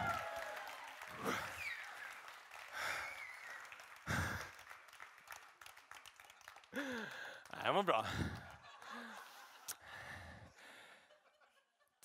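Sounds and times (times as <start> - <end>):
man breathing heavily into microphone: 6.8 - 11.1.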